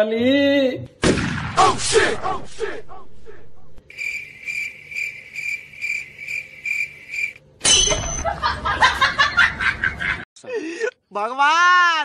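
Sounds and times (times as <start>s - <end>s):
cricket chirps: 3.9s - 8.2s.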